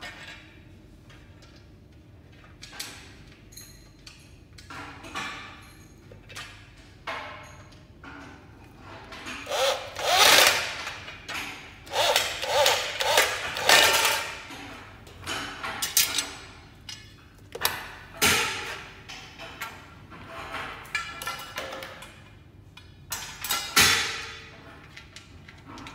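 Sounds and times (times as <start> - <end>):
electric drill driving screws: 9.4 - 10.9, 11.9 - 14.4.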